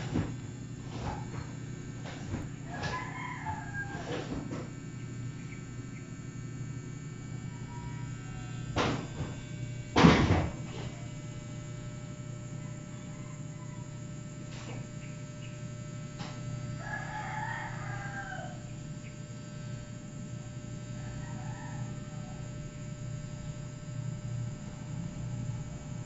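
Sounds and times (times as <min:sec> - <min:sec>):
distant rooster crowing: 0:00.0 - 0:19.2, 0:20.4 - 0:23.4
steady low hum: 0:00.0 - 0:26.0.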